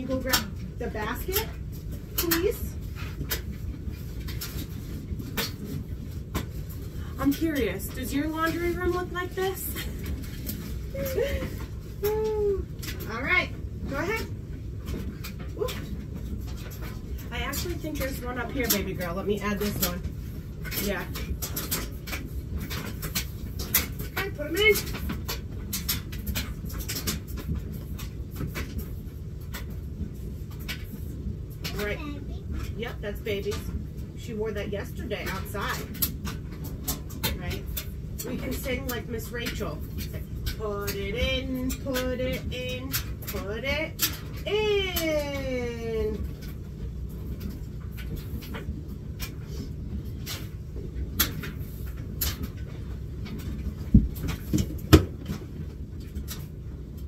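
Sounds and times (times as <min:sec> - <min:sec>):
steady low hum: 0:00.0 - 0:57.0
clothes and plastic basket clicking: 0:20.6 - 0:29.7.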